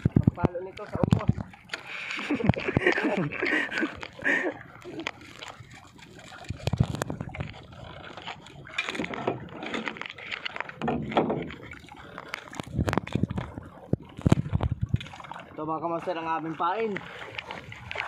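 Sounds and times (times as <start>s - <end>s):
water lapping against boat hull: 0.0s - 18.0s
wood and gear knocking on boat: 10.7s - 11.7s.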